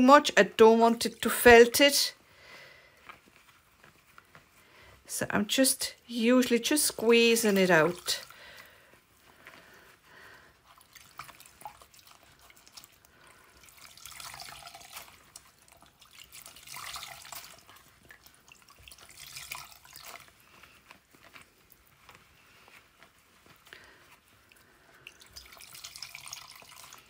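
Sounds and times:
water dripping and trickling: 6.4 - 8.8, 10.6 - 22.2, 24.4 - 27.0.

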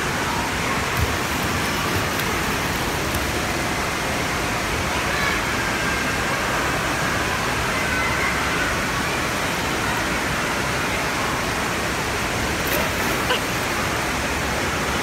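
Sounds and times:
rushing water hiss: 0.0 - 7.8, 8.4 - 15.0
child splashing into pool: 12.6 - 13.8.

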